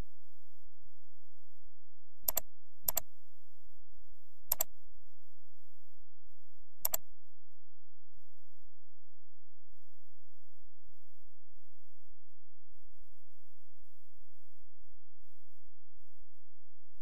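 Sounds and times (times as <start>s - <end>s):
computer mouse clicks: 2.3s - 3.1s, 4.5s - 4.7s, 6.8s - 7.0s.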